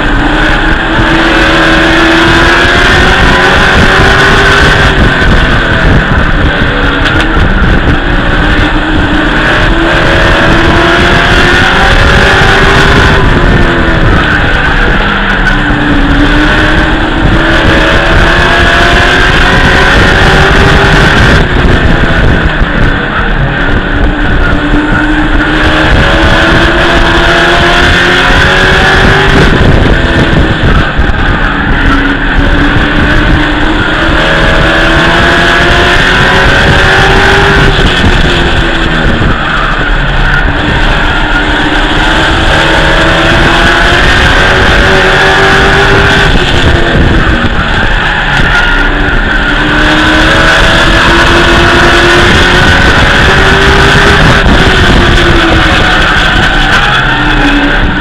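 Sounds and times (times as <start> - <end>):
race truck engine revving: 0.0 - 58.0
steady high whine: 0.0 - 58.0.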